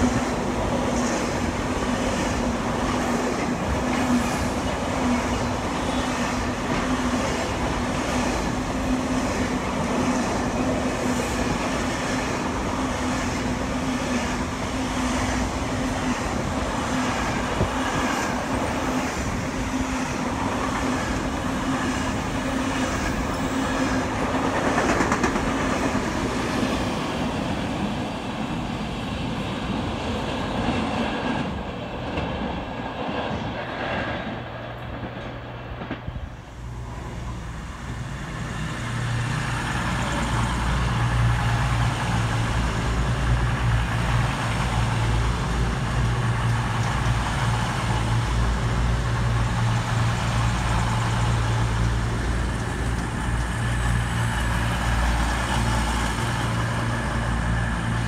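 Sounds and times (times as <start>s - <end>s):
train wheels clattering: 20.5s - 26.6s.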